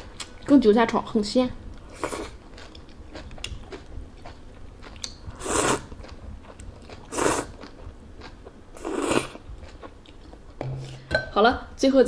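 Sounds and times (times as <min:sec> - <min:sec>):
person chewing with mouth clicks: 0:01.8 - 0:10.5
loud noodle slurps: 0:05.4 - 0:05.9, 0:07.1 - 0:07.6, 0:08.8 - 0:09.4.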